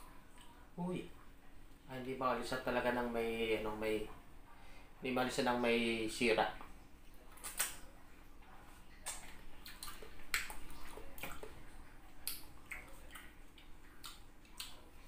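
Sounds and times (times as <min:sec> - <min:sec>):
person chewing wetly: 0:06.6 - 0:07.9, 0:08.9 - 0:15.0.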